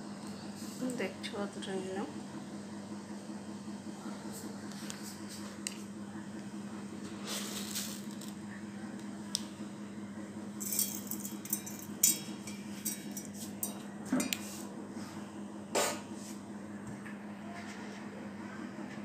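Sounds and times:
steel bowls clinking and rattling: 0:10.6 - 0:14.4.

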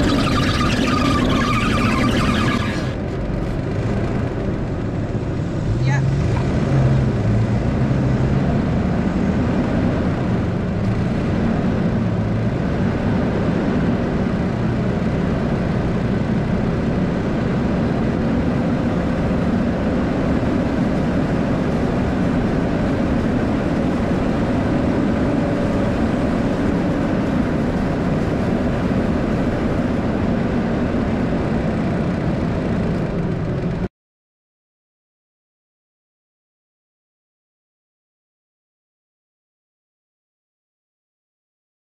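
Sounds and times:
pickup truck engine running: 0:00.0 - 0:05.8, 0:08.9 - 0:33.9.

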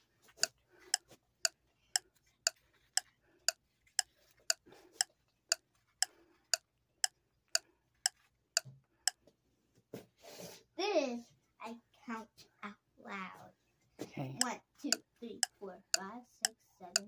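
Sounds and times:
plastic pointer tapping chart: 0:00.0 - 0:09.2, 0:14.4 - 0:17.0
faint whispered counting: 0:14.0 - 0:17.0.

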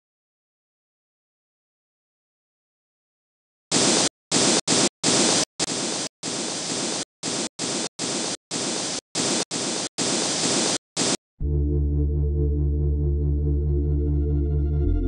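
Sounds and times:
chopped bursts of static hiss: 0:03.7 - 0:11.2.

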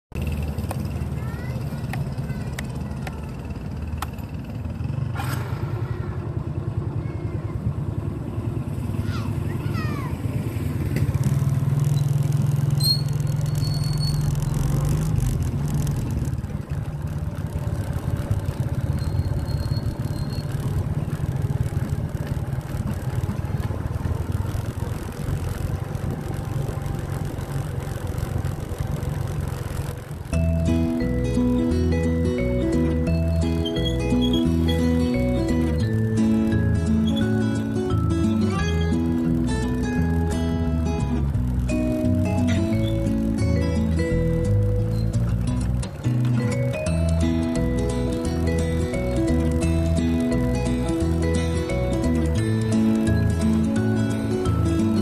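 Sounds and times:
motorcycle engine running: 0:00.1 - 0:55.0.

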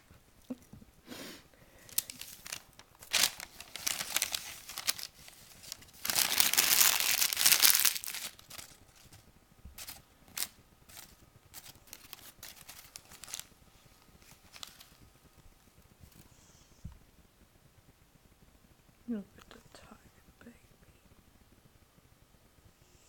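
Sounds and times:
newspaper crinkling: 0:01.9 - 0:09.2, 0:09.8 - 0:13.6, 0:14.2 - 0:15.0.

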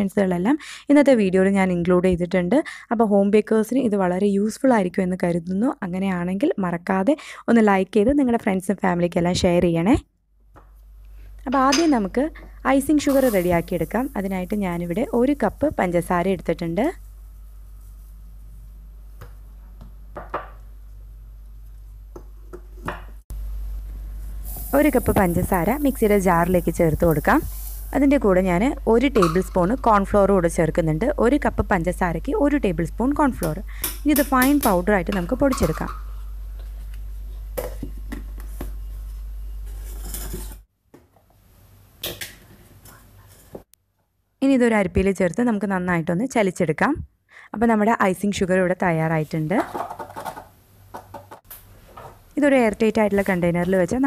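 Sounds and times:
low steady hum: 0:09.2 - 0:40.6.

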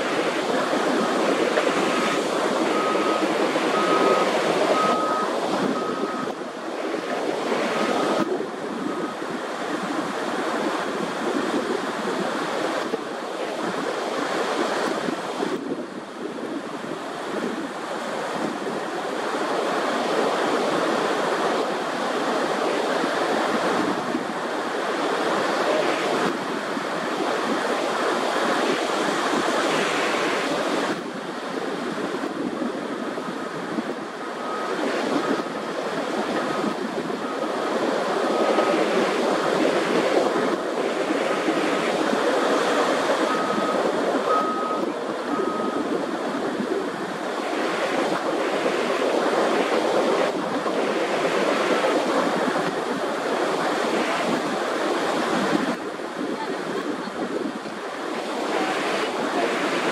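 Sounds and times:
steady rushing noise: 0:00.0 - 0:59.9
high beeps: 0:02.7 - 0:06.4, 0:43.3 - 0:45.9.

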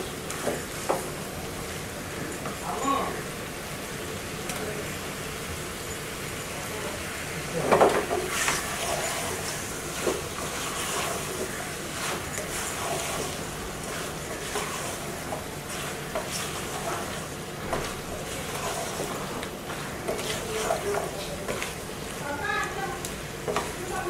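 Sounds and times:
steady cooking hiss: 0:00.0 - 0:24.0
wooden spatula scraping a pot: 0:08.2 - 0:22.8, 0:23.4 - 0:24.0.

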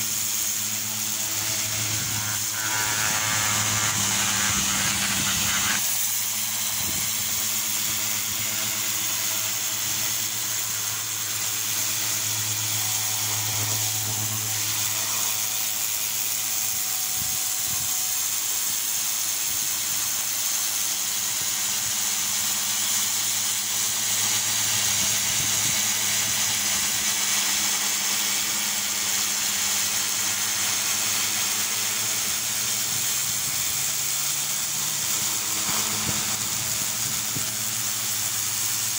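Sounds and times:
pressure washer jet hissing: 0:00.0 - 0:20.2, 0:29.6 - 0:38.9
pump humming: 0:00.0 - 0:38.9.

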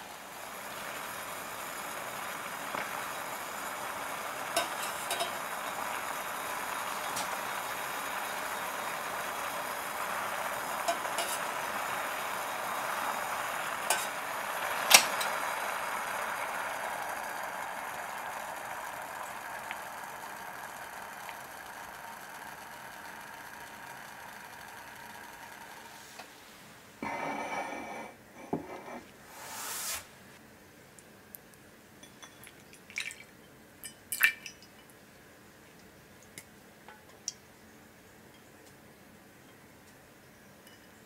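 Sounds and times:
steady hiss: 0:00.0 - 0:31.2.

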